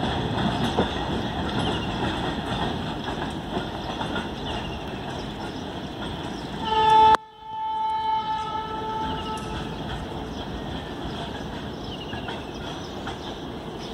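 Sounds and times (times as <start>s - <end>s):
train wagons rumbling on track: 0.0s - 13.9s
train horn: 6.6s - 9.8s.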